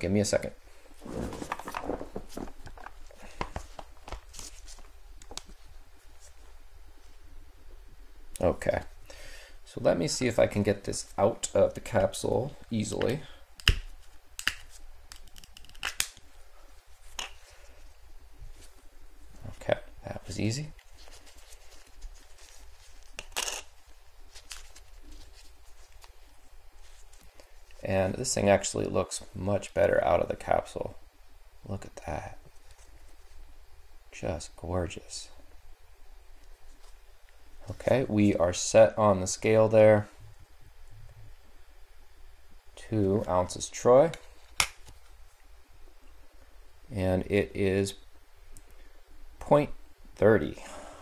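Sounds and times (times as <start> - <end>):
rustling: 0.8 - 7.2, 13.9 - 27.9.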